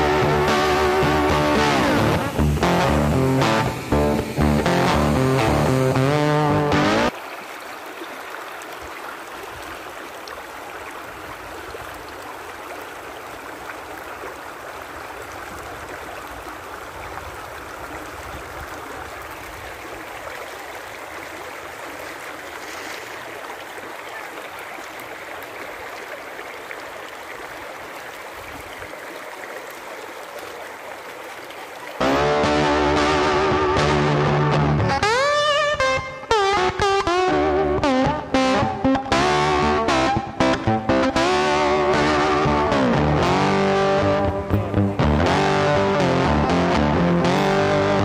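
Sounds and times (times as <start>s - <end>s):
stream flowing over stones: 0.0s - 33.1s.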